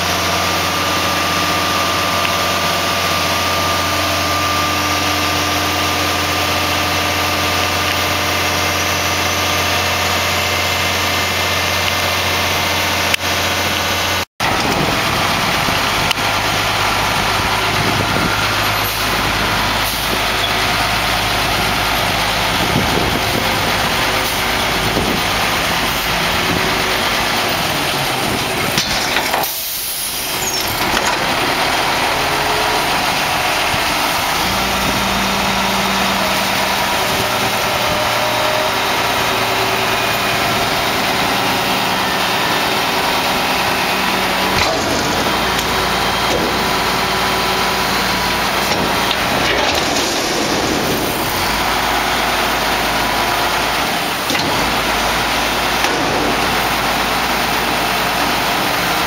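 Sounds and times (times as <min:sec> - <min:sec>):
dumpster lift whine: 0:00.0 - 0:59.0
garbage truck diesel engine: 0:00.0 - 0:59.0.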